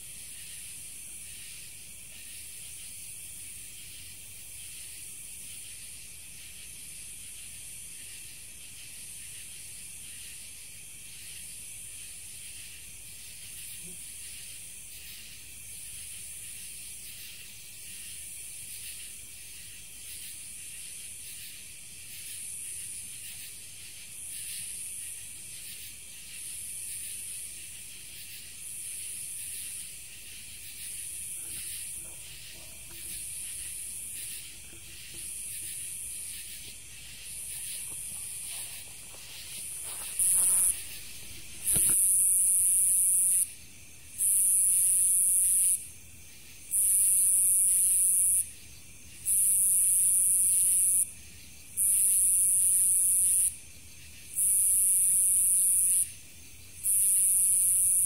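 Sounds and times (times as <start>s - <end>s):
high-pitched insect buzzing: 30.7s - 43.5s.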